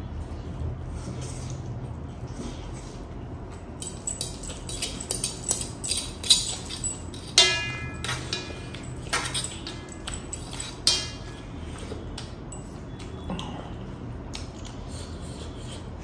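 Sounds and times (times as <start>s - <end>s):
fork clinking on metal plate: 3.8s - 11.4s.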